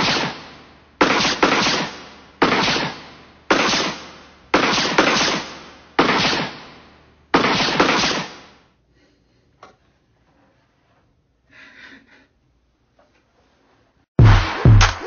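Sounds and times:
loud sudden bursts of noise: 14.2 - 15.0.

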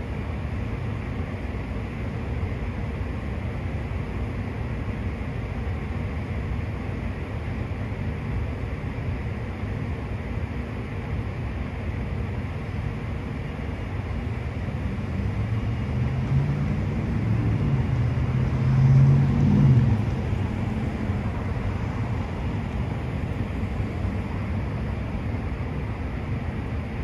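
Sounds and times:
city traffic noise: 0.0 - 27.0
vehicle passing: 15.1 - 24.2.

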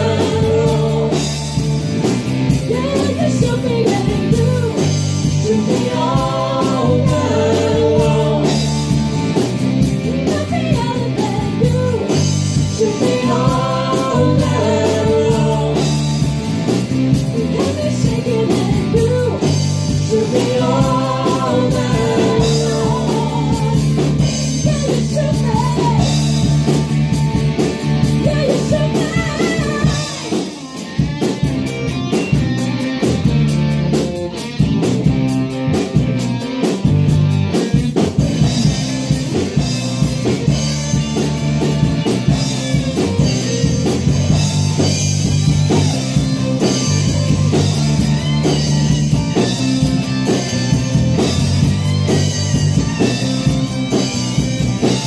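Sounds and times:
woman singing rock song: 0.0 - 26.8, 27.8 - 31.3
drums: 0.0 - 55.0
electric guitar: 0.0 - 55.0.

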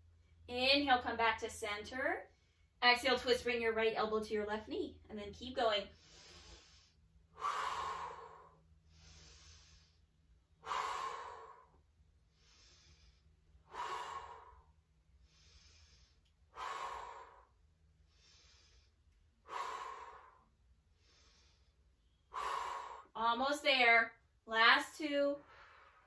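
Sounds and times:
woman breathing hard: 5.9 - 23.2.

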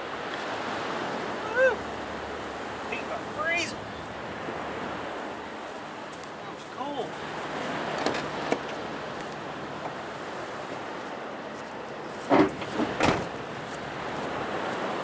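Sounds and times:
surf washing: 0.0 - 15.0
vehicle door slamming: 12.3 - 13.4.

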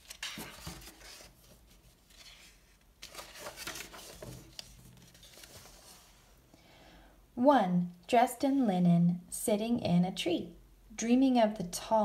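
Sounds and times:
book pages turning: 0.0 - 6.3.

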